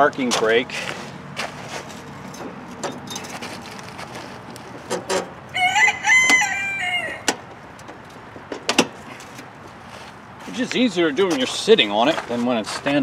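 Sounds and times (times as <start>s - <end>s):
rooster crowing: 5.5s - 7.4s.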